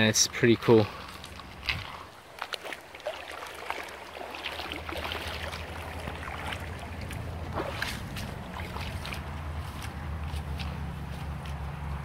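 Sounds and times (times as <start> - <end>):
river water trickling and lapping: 0.0 - 12.0
low steady rumble: 4.1 - 12.0.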